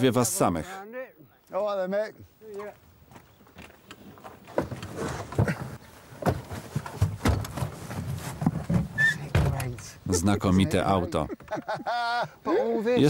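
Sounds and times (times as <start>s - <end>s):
knocks bumps and rustling: 3.2s - 9.9s.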